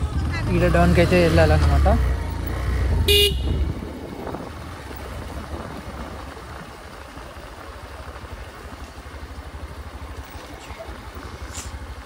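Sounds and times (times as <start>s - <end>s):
motorcycle engine running: 0.0s - 12.0s
horn toot: 3.0s - 3.8s.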